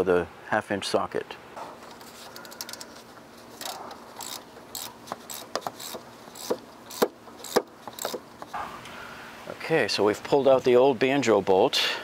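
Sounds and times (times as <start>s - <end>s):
ratchet wrench clicking: 3.6s - 8.2s.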